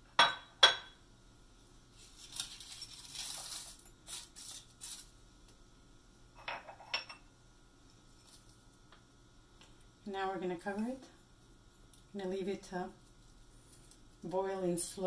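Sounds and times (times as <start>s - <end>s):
spices pouring in rustling patter: 1.9s - 5.2s, 8.1s - 8.8s, 12.9s - 14.4s.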